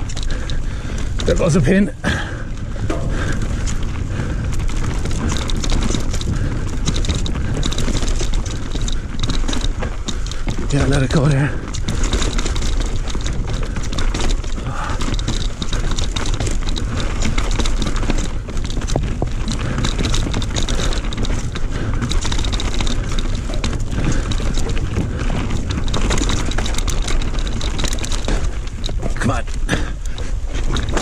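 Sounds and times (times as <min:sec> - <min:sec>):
bike clattering over rocky trail: 0:00.0 - 0:31.0
wind rumble on microphone: 0:00.0 - 0:31.0.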